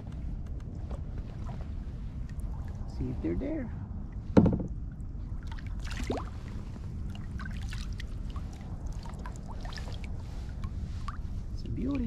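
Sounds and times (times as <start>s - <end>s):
low wind rumble: 0.0s - 12.0s
small water splashes: 5.2s - 11.3s.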